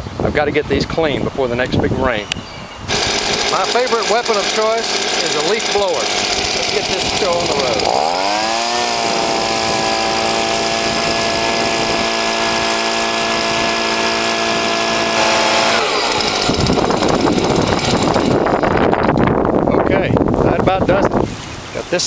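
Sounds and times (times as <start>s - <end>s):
leaf blower running: 2.9s - 19.2s
gusty rushing noise: 8.6s - 21.8s.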